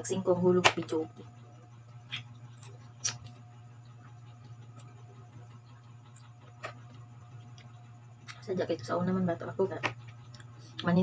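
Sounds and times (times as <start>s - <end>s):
steady low hum: 0.0s - 11.0s
quiet chewing: 6.0s - 8.5s.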